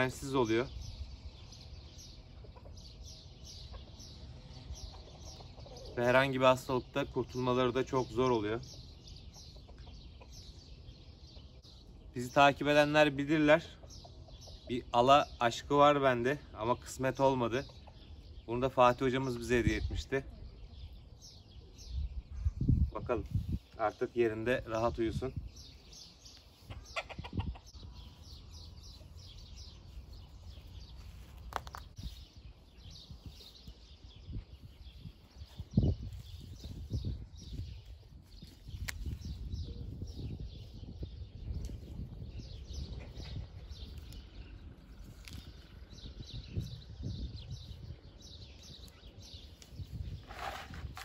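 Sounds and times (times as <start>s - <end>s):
birds chirping: 0.0s - 51.0s
soil being patted by hand: 38.5s - 39.3s, 49.6s - 51.0s.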